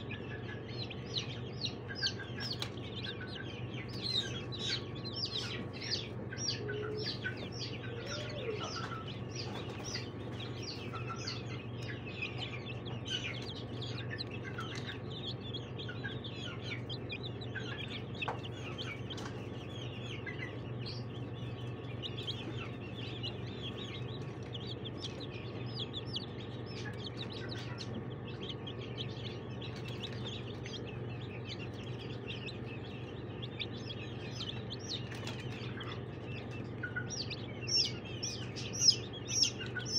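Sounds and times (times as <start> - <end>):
chicks peeping: 0.0 - 39.9
steady low hum: 0.0 - 39.9.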